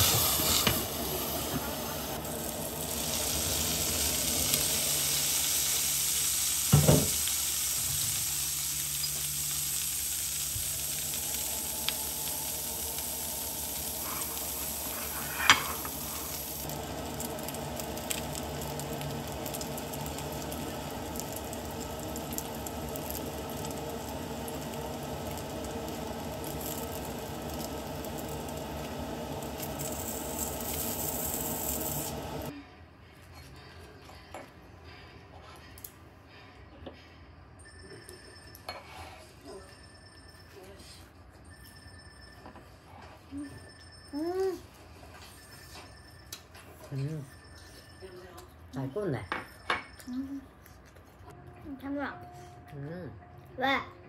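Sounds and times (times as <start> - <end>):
food sizzling in a pan: 0.0 - 32.5.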